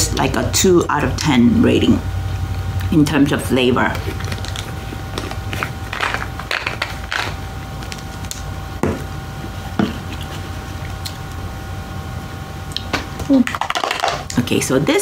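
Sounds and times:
faint steady hum: 0:00.0 - 0:15.0
plastic bottles knocking and clicking: 0:13.5 - 0:14.3.

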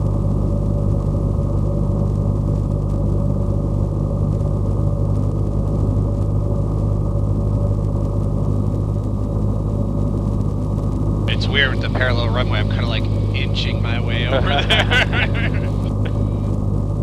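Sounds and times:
light aircraft engine droning: 0:00.0 - 0:17.0.

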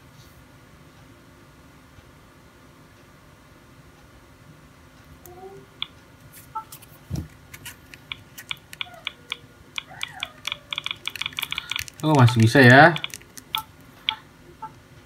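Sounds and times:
phone keypad clicks: 0:07.9 - 0:14.2
phone key beeps: 0:08.1 - 0:14.8.

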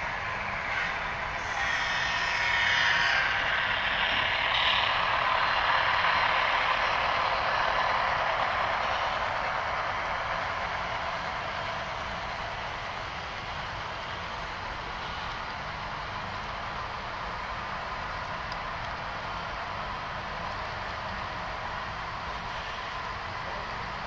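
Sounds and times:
model train rolling past: 0:00.0 - 0:24.0.

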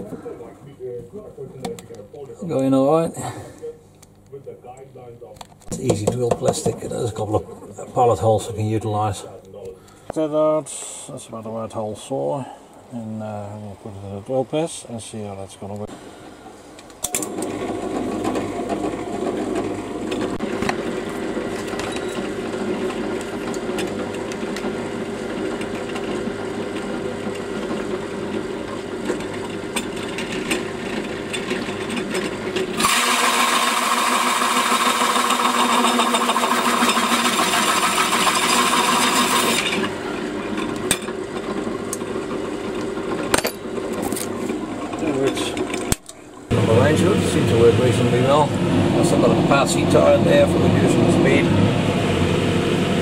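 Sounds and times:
drill press hole saw cutting plastic: 0:17.0 - 0:46.2.

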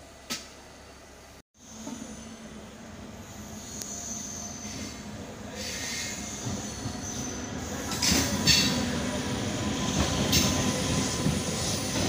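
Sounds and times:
train wheels rumbling: 0:01.6 - 0:12.0
high wheel squeals: 0:03.2 - 0:11.9.

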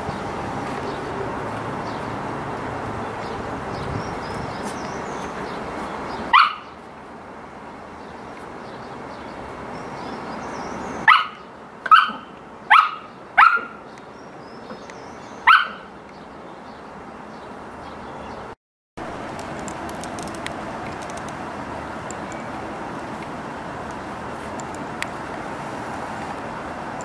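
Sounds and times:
puppy yapping: 0:11.0 - 0:13.8, 0:15.4 - 0:15.9.

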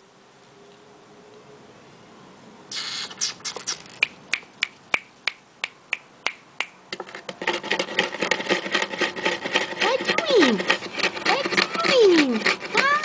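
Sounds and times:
sharp even clicks: 0:02.7 - 0:06.8.

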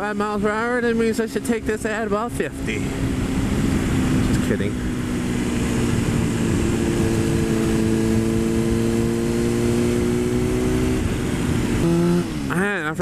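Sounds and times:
wind rush on microphone: 0:00.0 - 0:12.5
motorcycle engine running: 0:00.0 - 0:13.0.

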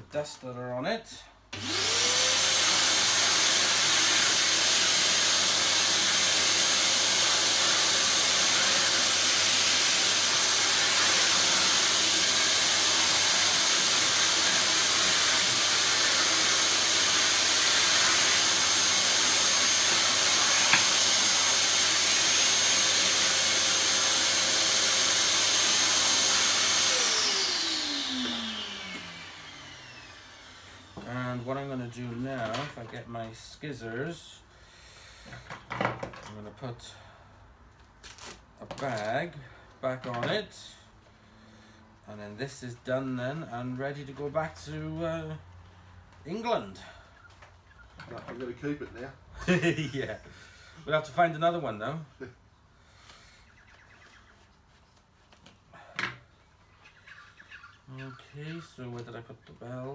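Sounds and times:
vacuum cleaner motor whining: 0:01.5 - 0:31.1.

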